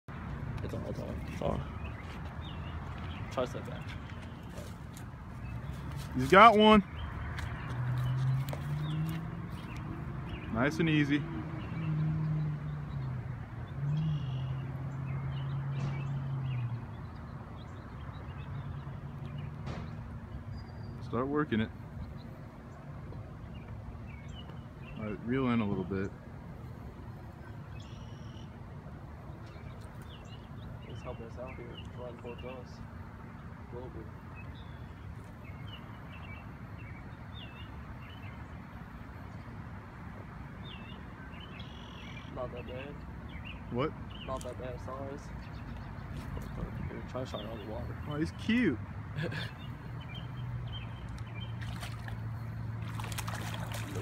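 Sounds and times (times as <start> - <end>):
small birds chirping: 0.5 - 28.6, 29.2 - 54.0
faint bird chirps: 13.9 - 16.7, 27.4 - 28.5, 40.6 - 44.7.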